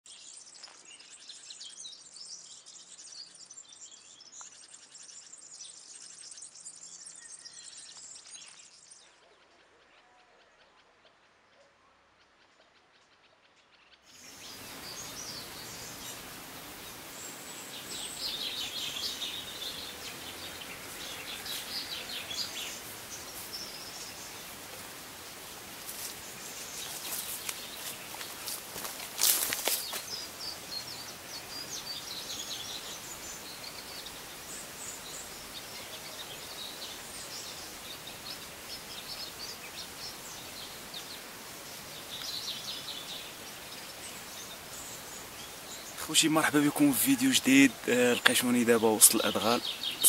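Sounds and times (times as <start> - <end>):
songbirds chirping and singing: 0.0 - 50.0
steady rushing hiss: 14.1 - 50.0.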